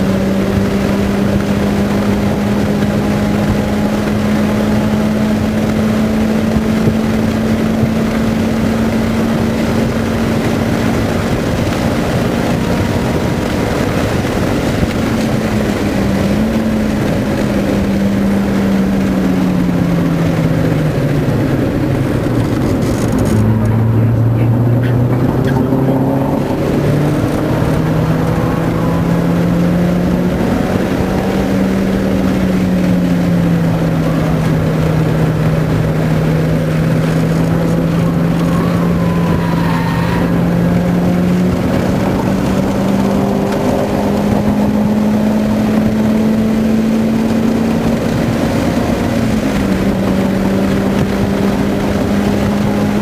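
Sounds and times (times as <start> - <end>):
car engine revving: 0.0 - 53.0
road and wind noise: 0.0 - 53.0.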